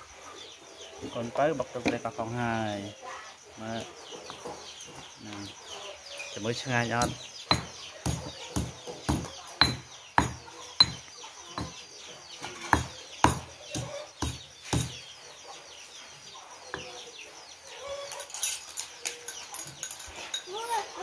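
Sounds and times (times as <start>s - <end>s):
pestle pounding in stone mortar: 7.0s - 11.8s, 12.7s - 15.0s.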